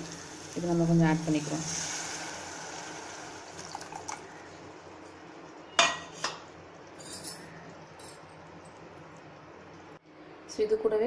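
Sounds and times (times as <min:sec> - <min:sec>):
sizzle: 0:00.0 - 0:07.0
liquid pouring into pot: 0:01.5 - 0:04.5.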